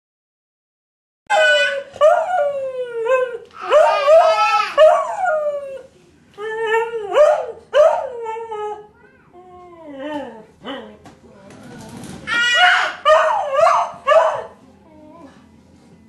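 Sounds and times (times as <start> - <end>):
baby yelling: 1.3 - 2.0, 3.6 - 4.9, 12.3 - 13.1
dog howling: 1.3 - 5.9.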